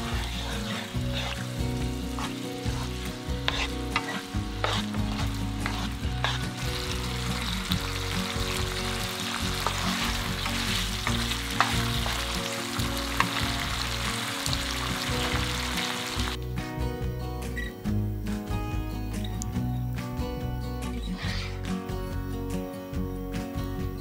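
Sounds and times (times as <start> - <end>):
sauce sizzling in a frying pan: 0.0 - 16.4
spatula scraping a pan: 0.0 - 16.4.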